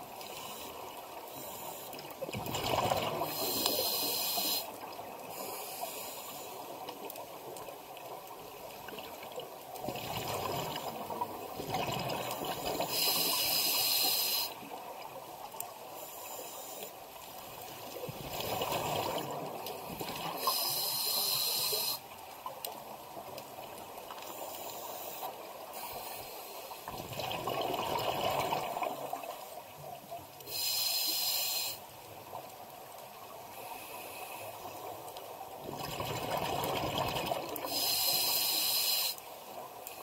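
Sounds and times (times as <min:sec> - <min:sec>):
exhaled bubbles gurgling: 0:02.3 - 0:04.1, 0:09.8 - 0:13.1, 0:18.1 - 0:20.6, 0:26.9 - 0:29.3, 0:35.6 - 0:37.8
regulator inhalation hiss: 0:03.2 - 0:06.8, 0:12.8 - 0:14.7, 0:20.4 - 0:22.1, 0:24.3 - 0:26.8, 0:30.4 - 0:31.9, 0:37.7 - 0:39.3.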